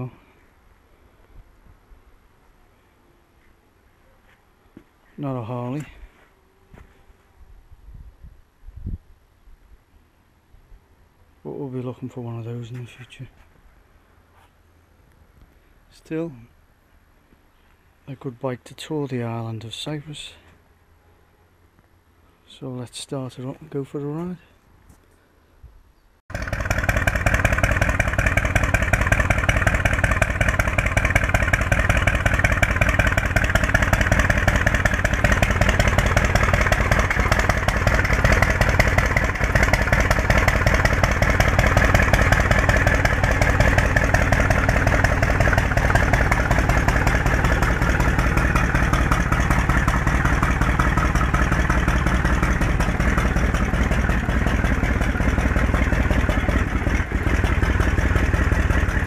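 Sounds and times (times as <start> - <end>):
motorcycle engine idling: 26.3 - 59.0.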